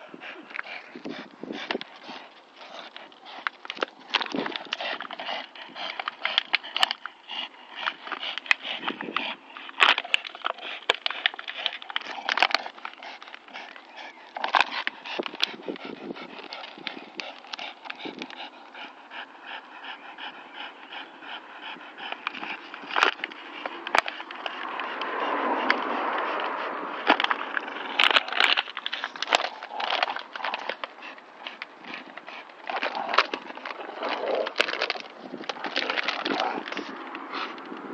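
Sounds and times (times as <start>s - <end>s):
dogs panting: 0.0s - 37.9s
plastic bottle crackling: 27.1s - 37.0s.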